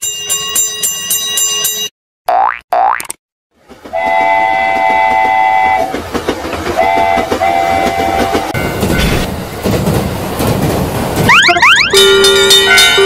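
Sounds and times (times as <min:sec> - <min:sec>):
train wheels clickety-clack: 0:03.6 - 0:11.3, 0:12.0 - 0:13.0
train whistle blasts: 0:03.9 - 0:05.9, 0:06.8 - 0:08.6.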